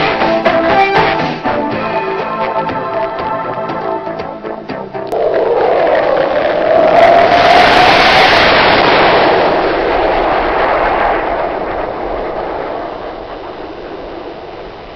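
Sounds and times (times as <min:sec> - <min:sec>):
cartoon rushing noise: 0:05.1 - 0:09.8.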